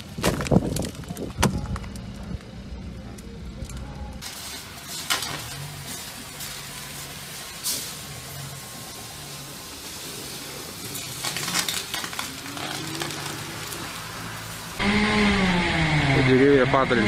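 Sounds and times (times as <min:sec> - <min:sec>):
trolleybus humming: 0:01.7 - 0:16.0
freezing rain hissing: 0:04.2 - 0:14.8.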